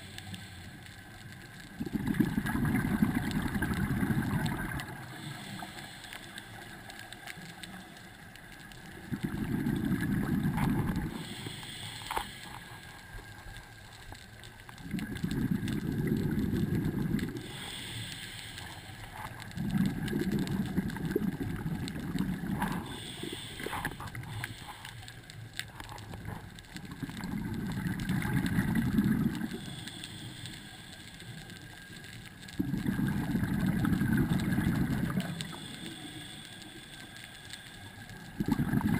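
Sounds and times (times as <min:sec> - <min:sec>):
regulator inhalation hiss: 0:00.0 - 0:01.2, 0:04.9 - 0:08.3, 0:10.8 - 0:13.8, 0:16.7 - 0:19.5, 0:22.6 - 0:25.5, 0:28.6 - 0:32.4, 0:33.1 - 0:38.4
exhaled bubbles underwater: 0:01.6 - 0:05.5, 0:08.8 - 0:11.8, 0:14.7 - 0:18.0, 0:19.3 - 0:24.8, 0:26.2 - 0:30.3, 0:31.7 - 0:36.4, 0:37.9 - 0:38.9.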